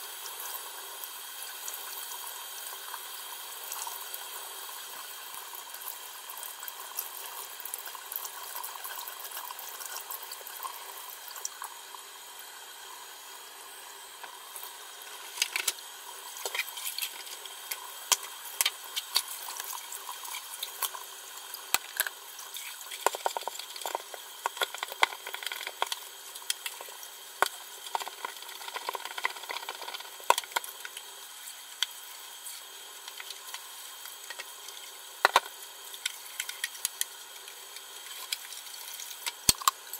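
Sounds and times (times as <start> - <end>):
brush scrubbing plastic: 14.5 - 39.5
plastic pieces knocking and clattering: 22.9 - 26.8.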